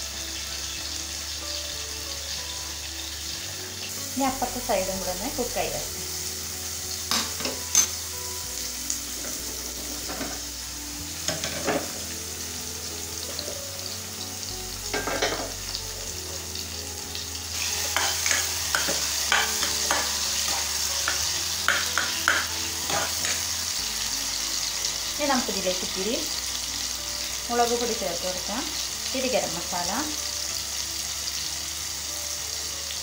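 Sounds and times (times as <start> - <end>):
oil sizzling in pans: 0.0 - 33.0
spoon knocking against pan: 14.9 - 15.5, 17.9 - 23.4.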